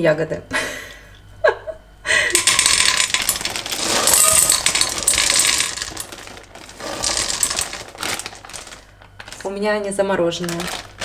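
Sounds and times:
frozen berries rattling into metal pan: 2.3 - 11.0.

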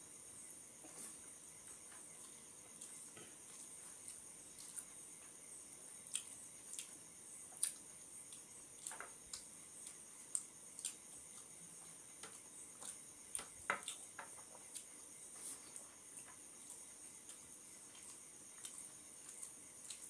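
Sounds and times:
chewing smacks: 6.1 - 7.0, 7.6 - 11.5.

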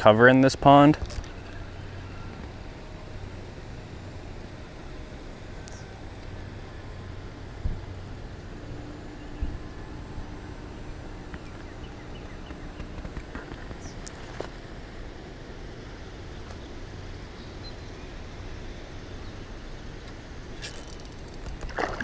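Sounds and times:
fishing reel ticking: 20.6 - 21.7.

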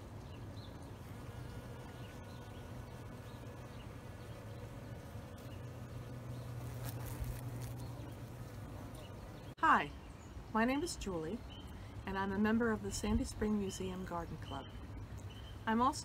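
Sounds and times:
bees buzzing: 0.4 - 9.6.

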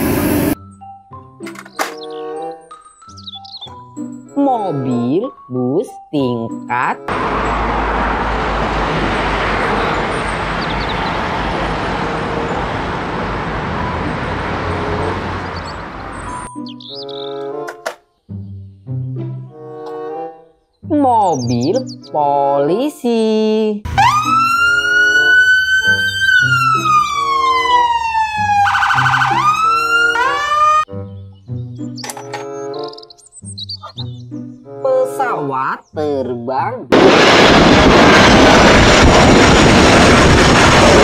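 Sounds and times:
bus engine: 0.0 - 0.6, 7.0 - 16.5
road traffic noise: 0.0 - 3.9, 6.9 - 18.1, 23.9 - 36.0
children's background music: 0.6 - 7.1, 16.3 - 36.9
police siren wailing: 23.9 - 30.9.

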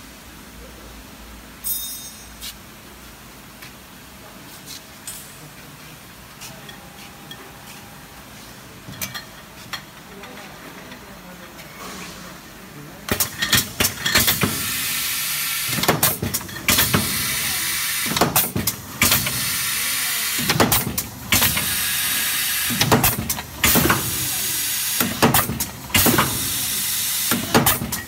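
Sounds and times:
machine clicks and clunks: 13.1 - 14.6, 15.7 - 17.2, 18.0 - 19.4, 20.4 - 21.8, 22.7 - 24.2, 24.9 - 26.6, 27.2 - 28.0
gas hissing: 13.1 - 28.0.

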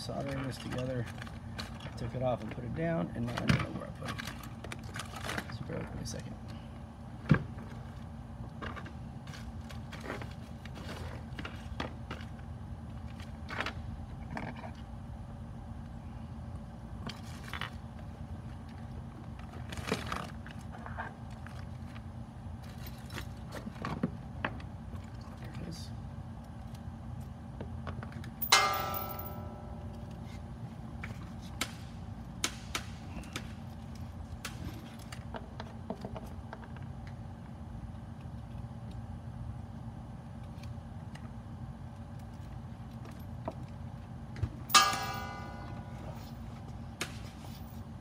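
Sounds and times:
steady low hum: 0.0 - 48.0
ringing metallic clinks: 28.4 - 29.6, 44.7 - 46.3.

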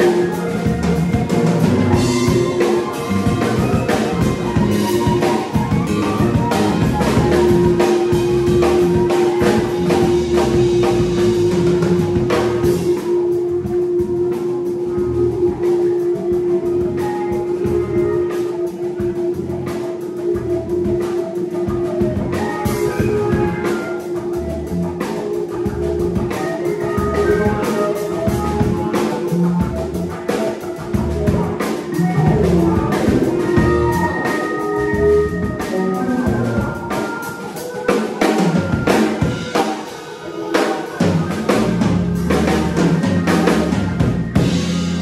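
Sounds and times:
low bass notes: 0.0 - 18.3, 19.0 - 37.0, 41.0 - 45.0
live soul-jazz band: 0.0 - 45.0.

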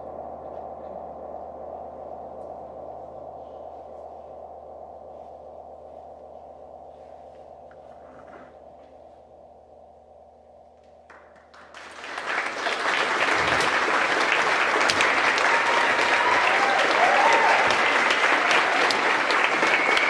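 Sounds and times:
low steady drone: 0.0 - 20.0
audience applause: 11.1 - 20.0
people cheering: 11.5 - 20.0.

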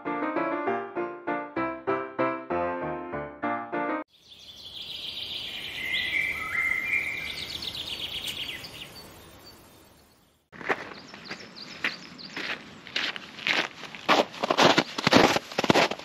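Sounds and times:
piano music: 0.0 - 4.1
hiss with bird-like chirps: 4.2 - 10.2
footsteps: 10.5 - 16.0.

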